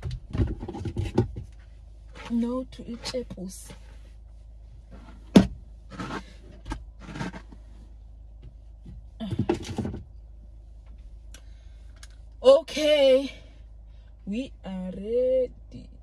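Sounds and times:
hair rustling and scraping: 0.6 - 7.9.

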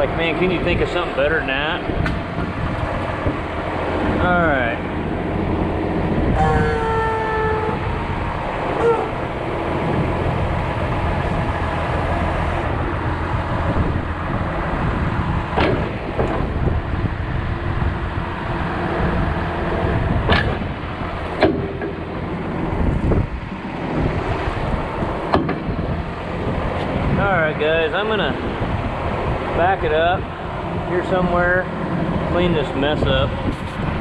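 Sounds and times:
diesel engine running: 0.0 - 34.0
sharp knocks: 15.5 - 16.5, 20.3 - 20.7, 21.3 - 22.1, 25.3 - 25.7.

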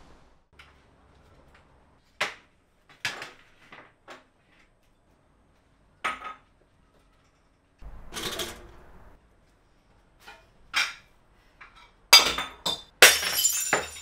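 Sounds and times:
kitchen items knocking and clinking: 7.9 - 8.9, 10.2 - 14.0.

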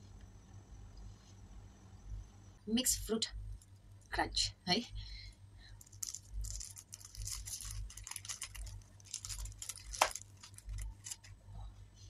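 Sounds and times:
plastic wrapper crinkling: 5.7 - 11.4.

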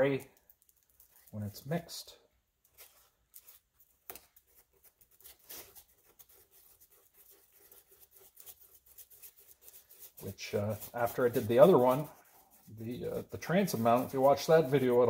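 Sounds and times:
stir stick scraping and tapping: 7.0 - 15.0.

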